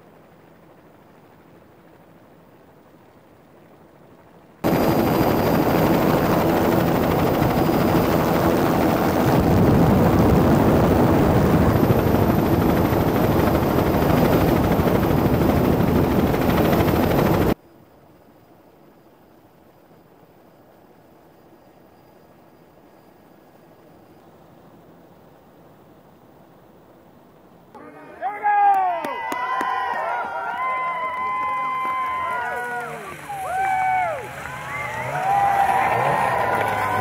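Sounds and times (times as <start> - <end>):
snowmobile engine racing: 32.2 - 37.0.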